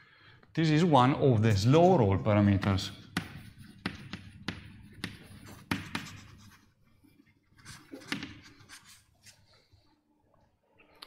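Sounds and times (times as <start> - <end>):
pen or chalk scratching on board: 3.0 - 6.8, 7.6 - 9.4.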